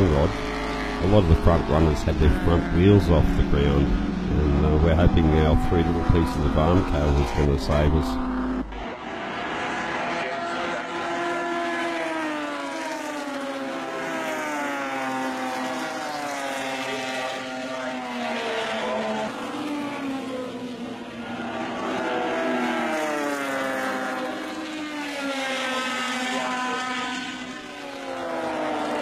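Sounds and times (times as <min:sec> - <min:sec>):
racing car engines passing: 0:00.0 - 0:29.0.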